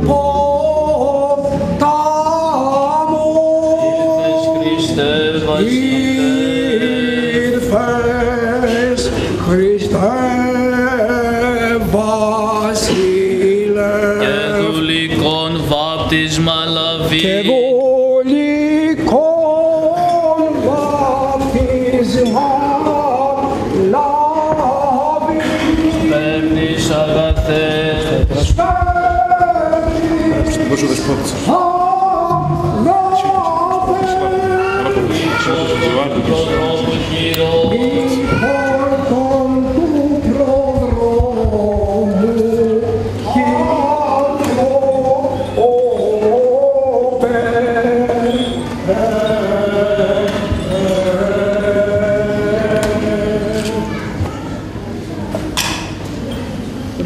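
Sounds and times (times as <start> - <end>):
men singing unaccompanied chant: 0.0 - 54.0.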